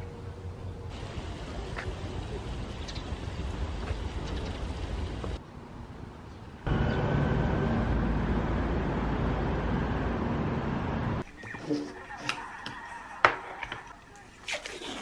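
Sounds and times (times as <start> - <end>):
distant traffic drone: 0.0 - 14.3
low engine hum: 6.6 - 11.2.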